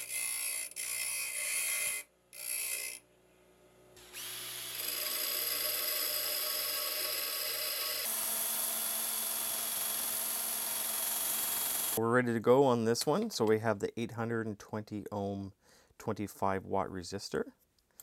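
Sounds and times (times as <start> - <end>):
bench grinder grinding steel: 0.0 - 3.0, 4.0 - 12.0
drill spinning rod on belt sander: 4.0 - 12.0.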